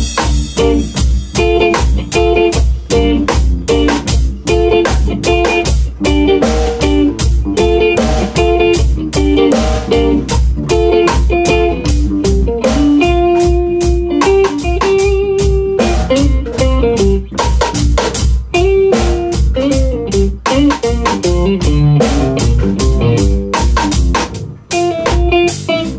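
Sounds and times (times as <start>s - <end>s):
bass guitar: 0.0s - 25.9s
drums beating on cymbals: 0.0s - 25.9s
electric guitar melody: 0.0s - 25.9s.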